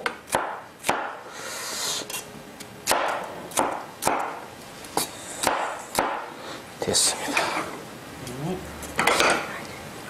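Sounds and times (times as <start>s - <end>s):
knife chopping on cutting board: 0.0s - 1.2s, 2.8s - 4.4s, 5.4s - 6.3s.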